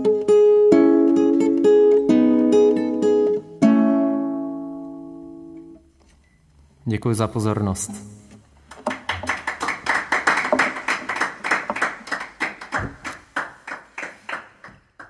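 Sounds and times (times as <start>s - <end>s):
hands clapping in applause: 8.7s - 15.0s.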